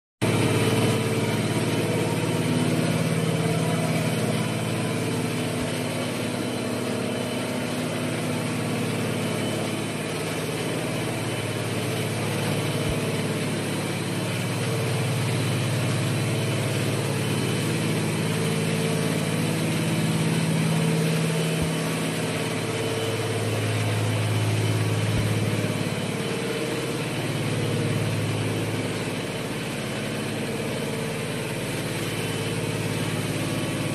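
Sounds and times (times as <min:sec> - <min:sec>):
machinery hum and whir: 0:00.2 - 0:33.9.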